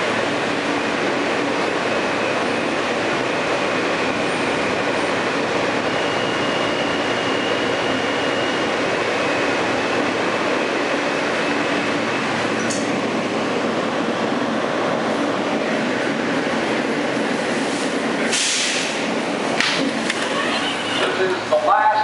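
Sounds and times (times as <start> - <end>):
wheels rumbling on rail: 0.0 - 22.0
high wheel squeal: 5.8 - 9.4.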